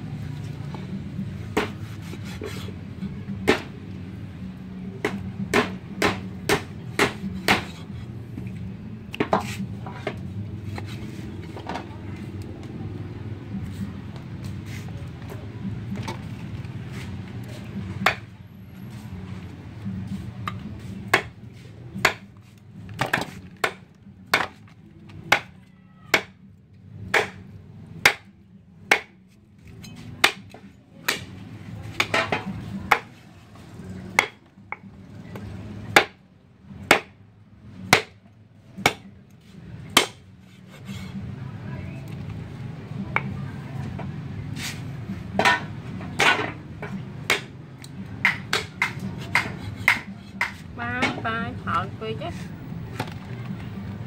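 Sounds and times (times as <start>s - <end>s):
knife chopping on cutting board: 1.5s - 2.7s, 5.0s - 7.8s, 48.3s - 50.6s.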